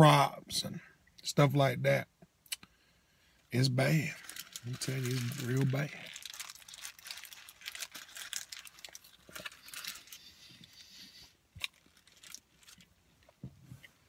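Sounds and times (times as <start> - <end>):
paper wrapper crinkling: 4.1 - 10.8, 11.6 - 13.0.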